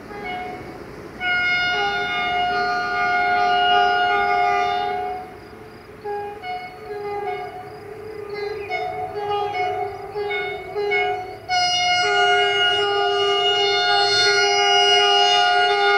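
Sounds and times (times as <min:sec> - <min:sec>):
locomotive air horn chord: 0:00.0 - 0:15.9.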